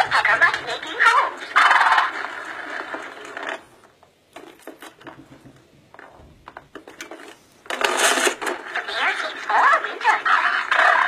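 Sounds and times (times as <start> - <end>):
talking toy speaker sound: 0.0 - 2.5, 7.9 - 11.0.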